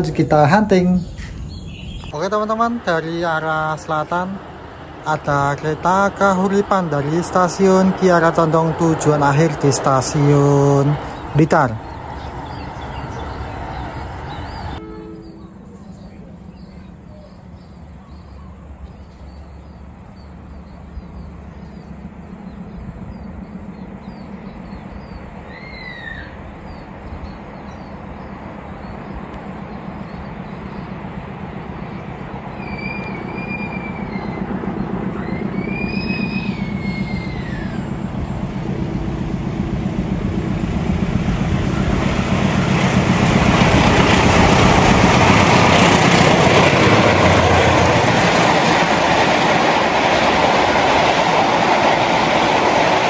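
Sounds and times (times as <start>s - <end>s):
diesel locomotive engine drone: 0.0s - 53.0s
train wheels rushing on rails: 0.0s - 53.0s
whistle-like calls: 25.5s - 26.4s, 32.6s - 34.5s, 35.1s - 38.0s.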